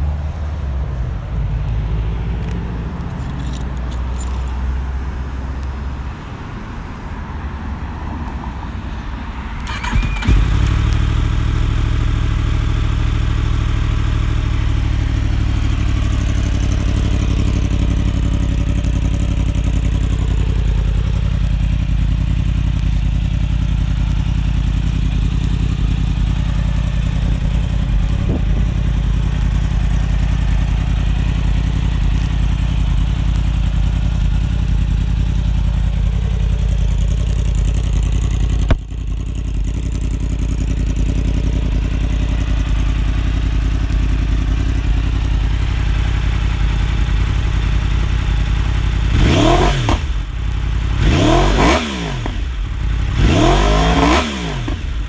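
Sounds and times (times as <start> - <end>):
motorcycle engine starting and idling: 0.9 - 7.2, 9.4 - 55.0.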